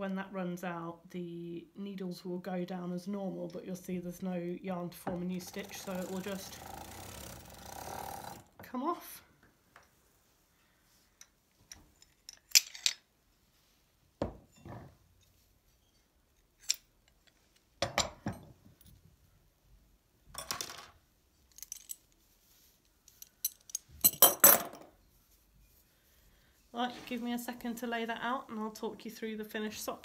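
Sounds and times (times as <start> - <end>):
metal hooks clinking and rattling: 11.7 - 13.0, 21.5 - 22.1, 23.1 - 24.8.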